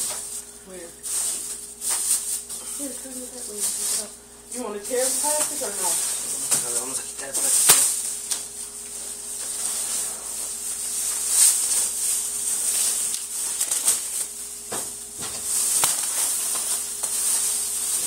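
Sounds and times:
packaging rustling and crinkling: 0:04.8 - 0:14.5, 0:15.2 - 0:18.0.

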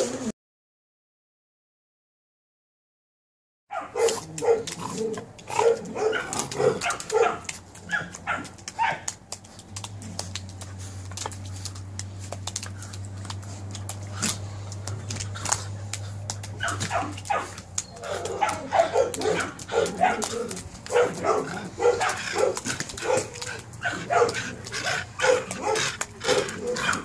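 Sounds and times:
puppy barking: 0:03.7 - 0:09.2, 0:16.3 - 0:27.0
sharp clicks and scuffs: 0:04.0 - 0:27.0
steady low hum: 0:04.2 - 0:27.0.

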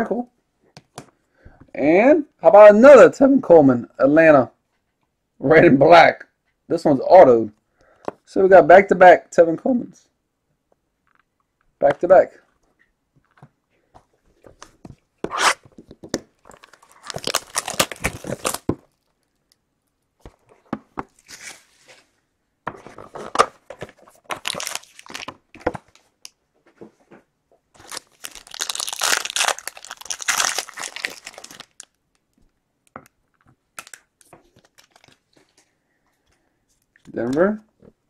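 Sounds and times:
cardboard and plastic tearing: 0:16.5 - 0:18.8, 0:24.3 - 0:25.3, 0:27.8 - 0:31.9
foil pack rustling: 0:27.8 - 0:31.8.

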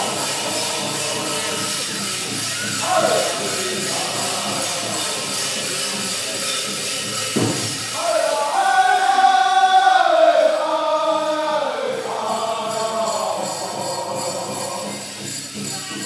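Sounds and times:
jingles: 0:00.0 - 0:08.3, 0:12.0 - 0:16.0
drumbeats: 0:00.0 - 0:09.4
group chanting in high voices: 0:00.0 - 0:15.1
drum thump: 0:07.4 - 0:07.9.

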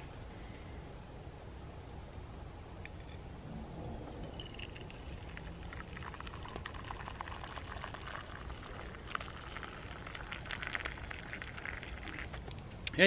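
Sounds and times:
coffee pouring into mug: 0:04.1 - 0:12.4.

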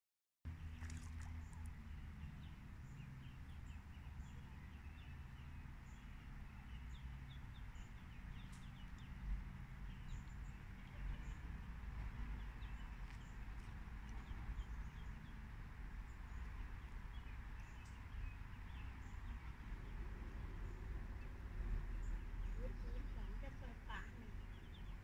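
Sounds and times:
ducklings peeping: 0:12.6 - 0:15.4, 0:20.6 - 0:25.0.

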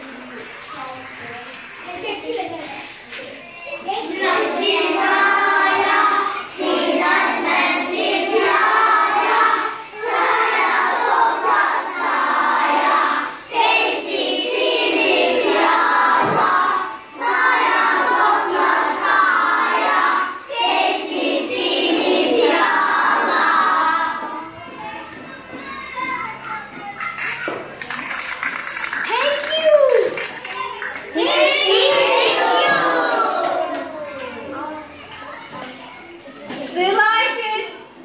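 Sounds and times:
children singing together: 0:01.8 - 0:27.2, 0:30.5 - 0:34.1.

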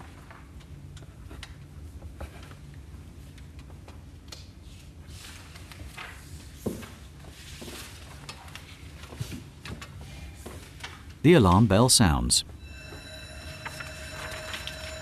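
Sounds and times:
pens and paper rustling: 0:03.3 - 0:11.0.

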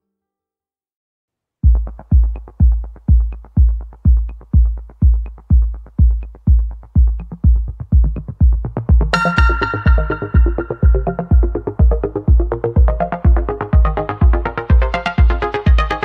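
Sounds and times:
electronic dance music: 0:01.7 - 0:16.0
synth chord: 0:09.1 - 0:15.4.

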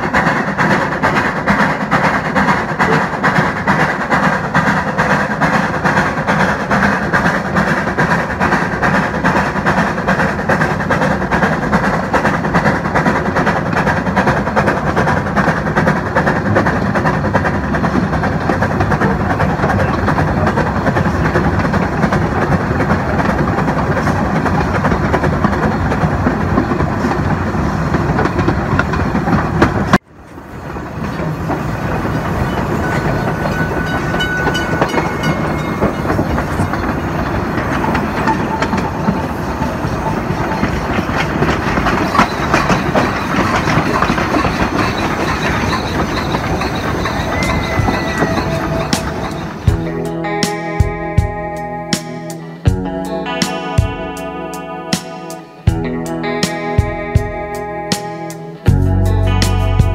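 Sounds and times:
steam locomotive running: 0:00.0 - 0:59.9
wheels clattering over track: 0:00.0 - 0:59.9
faint high squeals: 0:44.4 - 0:49.7.

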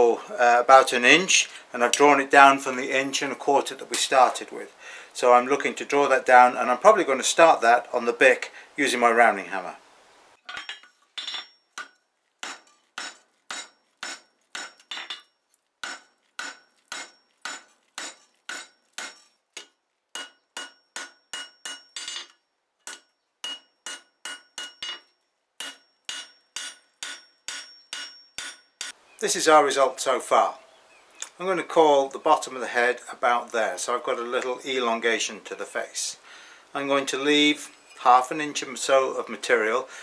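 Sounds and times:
hammer striking steel on anvil: 0:10.5 - 0:29.0.

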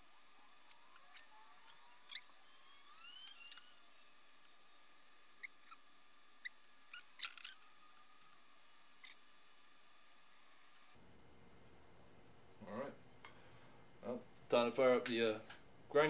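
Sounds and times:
marker squeaking on metal tube: 0:00.9 - 0:04.0, 0:05.4 - 0:08.1, 0:09.0 - 0:09.2.

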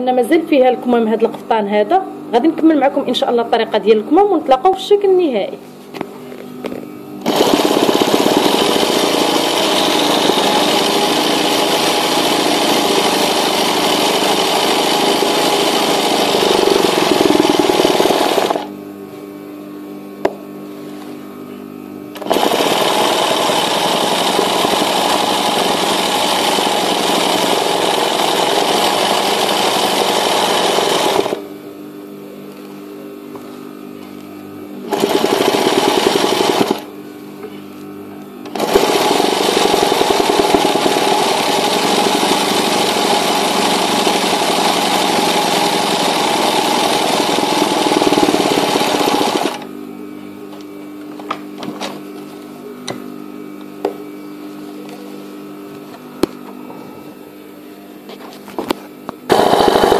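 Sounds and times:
sewing machine stitching: 0:07.2 - 0:18.7, 0:22.2 - 0:31.4, 0:34.9 - 0:36.9, 0:38.5 - 0:49.7.

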